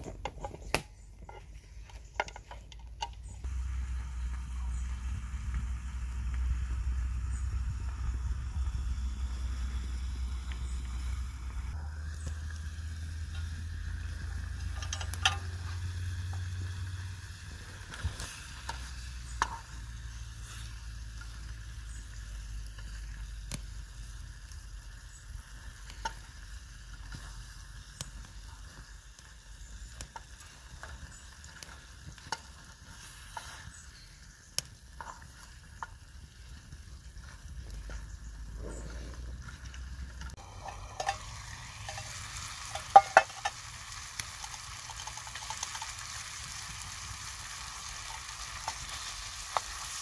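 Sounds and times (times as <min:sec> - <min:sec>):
stew sizzling in a metal tin: 0:00.0 - 0:50.0
wooden spoon stirring: 0:37.2 - 0:43.6.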